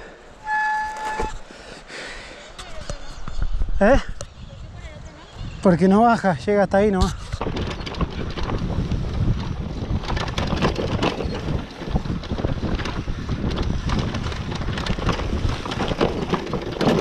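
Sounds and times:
wind buffeting microphone: 2.6 - 17.0
bicycle rolling on bumpy grass: 5.1 - 17.0
bicycle frame clicks and knocks: 7.2 - 17.0.

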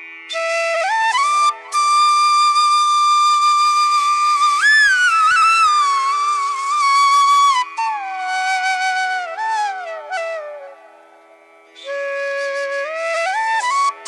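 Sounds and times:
sliding melody of held notes: 0.3 - 14.0.

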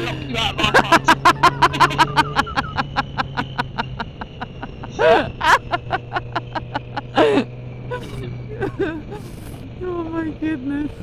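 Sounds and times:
person laughing: 0.0 - 9.3
motorcycle engine hum: 0.0 - 11.0.

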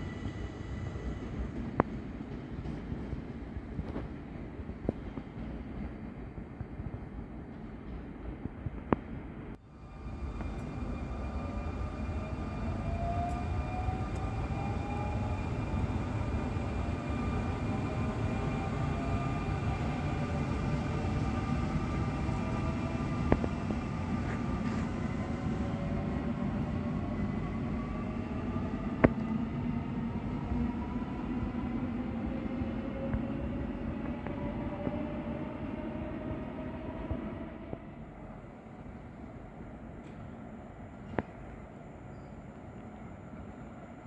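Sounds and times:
steady train rumble: 0.0 - 44.0.

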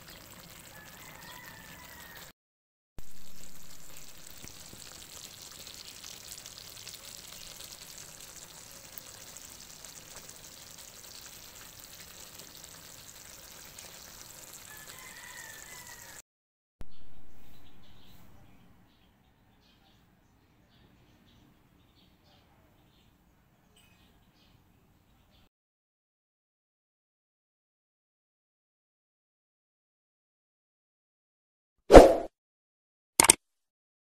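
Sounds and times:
food simmering and sizzling: 0.0 - 2.3, 3.0 - 16.2.

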